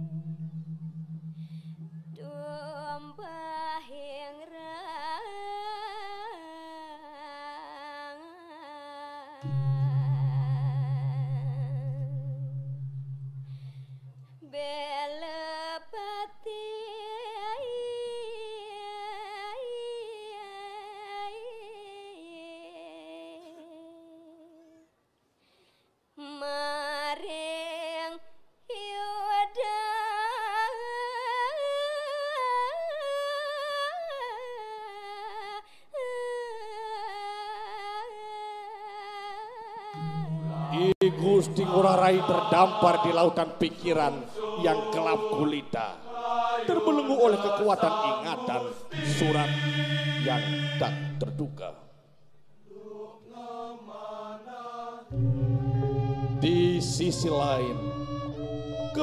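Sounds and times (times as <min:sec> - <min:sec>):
person singing ornamented notes: 0:00.0 - 0:03.8, 0:09.4 - 0:15.0, 0:39.9 - 0:51.9, 0:55.1 - 0:59.0.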